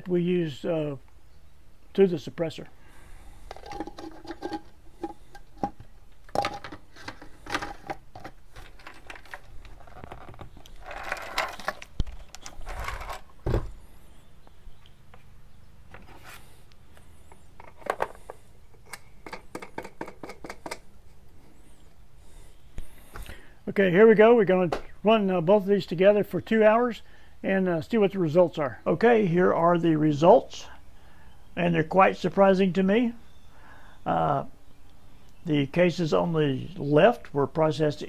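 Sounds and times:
heavy thump: 0:13.4 - 0:13.8
small clicks and knocks: 0:16.9 - 0:20.9.

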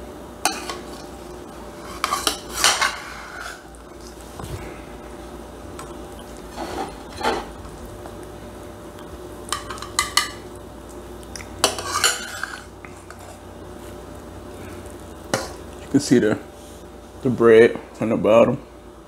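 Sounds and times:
metal utensil scraping a pan: 0:01.8 - 0:03.7, 0:11.6 - 0:13.4.

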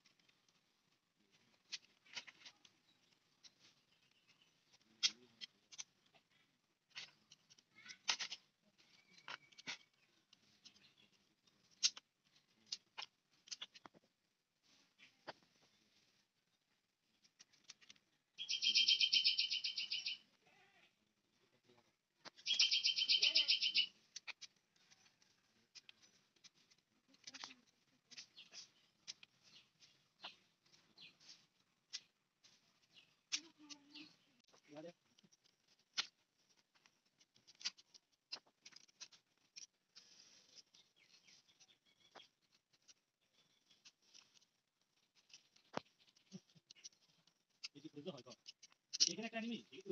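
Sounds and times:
knife clicking and scraping plant: 0:01.4 - 0:13.9, 0:17.1 - 0:18.1, 0:23.9 - 0:49.9
animal chirping call: 0:18.4 - 0:20.2, 0:22.4 - 0:23.9.

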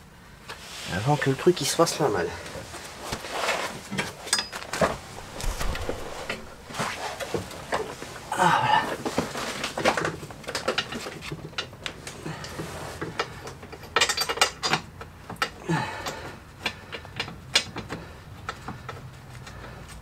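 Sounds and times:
metallic clicks of tools and bolts: 0:13.7 - 0:16.2.

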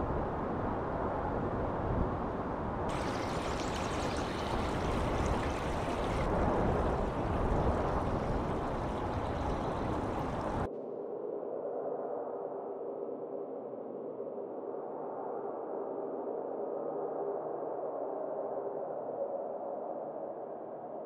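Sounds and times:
bright water hiss: 0:02.9 - 0:10.7
rushing river water: 0:02.9 - 0:10.7.

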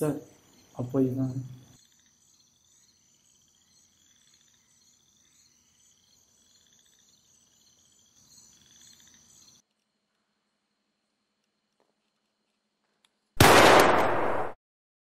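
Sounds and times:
frogs chirping: 0:00.0 - 0:09.6
crickets trilling: 0:00.0 - 0:13.4.

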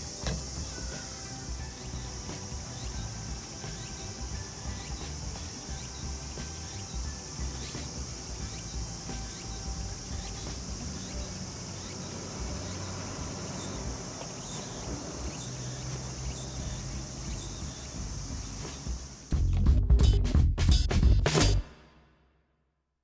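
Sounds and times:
insect high trill: 0:00.0 - 0:19.3
insect pulsing call: 0:00.0 - 0:19.5.

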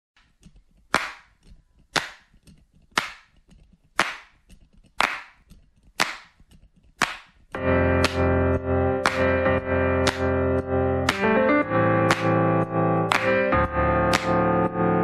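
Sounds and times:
sharp clap-like hits: 0:00.9 - 0:02.4, 0:03.0 - 0:03.4, 0:04.0 - 0:04.4, 0:05.0 - 0:06.4, 0:07.0 - 0:14.7.

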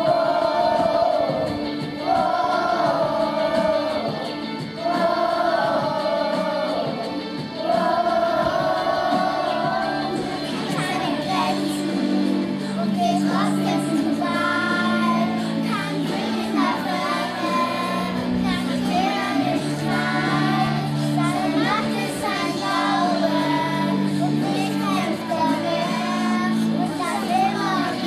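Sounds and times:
children singing: 0:00.0 - 0:28.0.

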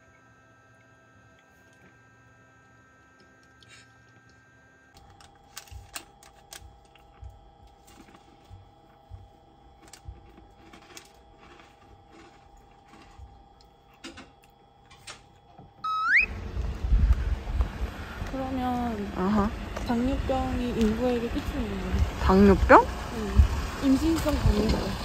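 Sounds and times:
faint steady hum: 0:00.0 - 0:25.0
rising whistle-like tone: 0:15.8 - 0:16.4.

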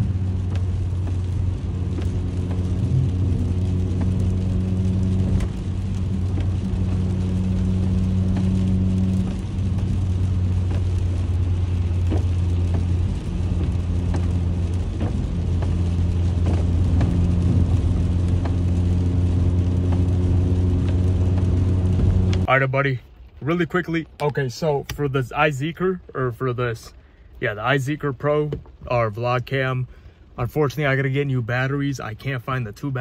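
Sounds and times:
engine and tyre drone: 0:00.0 - 0:22.5.

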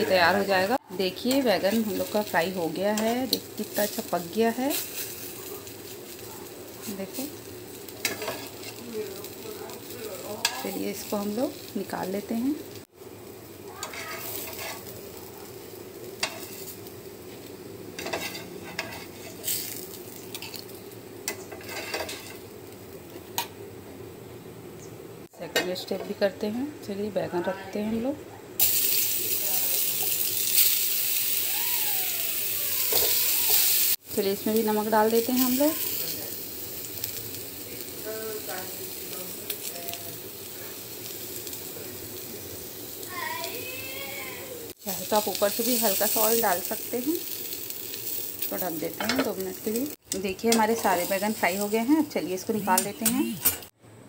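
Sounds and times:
slices sizzling in oil: 0:00.0 - 0:23.7, 0:28.6 - 0:53.8
metal spatula scraping pan: 0:08.0 - 0:08.8, 0:13.9 - 0:14.9, 0:18.0 - 0:20.6, 0:21.5 - 0:22.4.

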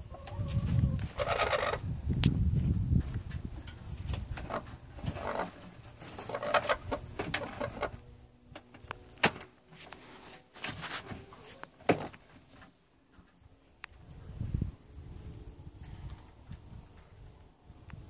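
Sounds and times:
hens clucking softly: 0:00.0 - 0:01.8.

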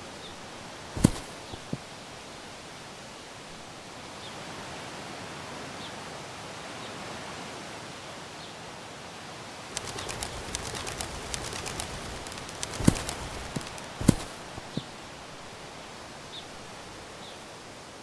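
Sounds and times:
outdoor ambience: 0:00.0 - 0:04.8, 0:09.6 - 0:18.0
rapid clicks and flutters: 0:01.0 - 0:01.8, 0:09.8 - 0:15.0
faint bird chirps: 0:09.8 - 0:15.0.

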